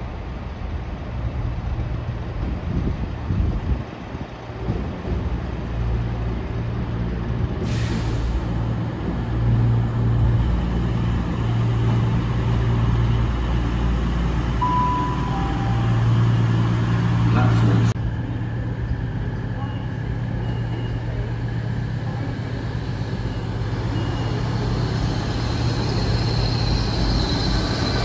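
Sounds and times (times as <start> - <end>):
train diesel engines droning: 0.0 - 28.0
two-note tone: 14.6 - 16.1.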